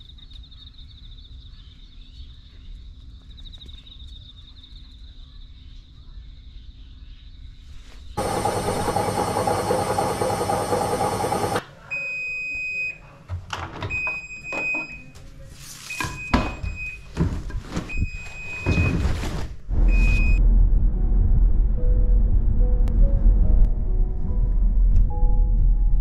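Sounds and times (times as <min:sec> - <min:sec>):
washing machine beeps: 0:08.2 - 0:13.2, 0:13.8 - 0:15.2, 0:15.9 - 0:17.2, 0:17.8 - 0:19.1, 0:19.9 - 0:20.4.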